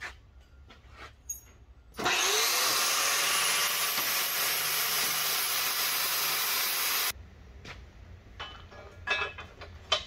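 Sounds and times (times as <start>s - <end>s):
angle grinder grinding steel: 2.0s - 7.1s.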